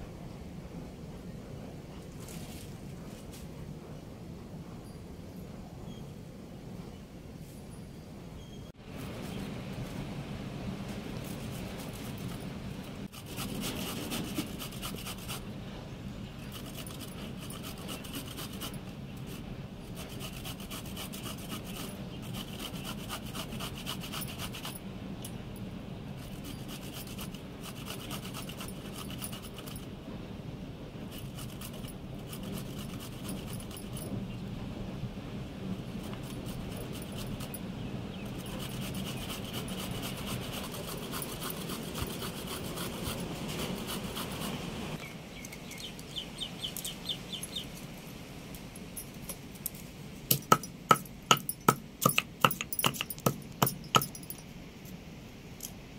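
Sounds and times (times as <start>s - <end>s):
coconut scraping on metal grater: 11.2s - 15.5s, 16.4s - 24.8s, 26.2s - 29.8s, 31.1s - 34.0s, 35.9s - 37.6s, 38.3s - 44.6s.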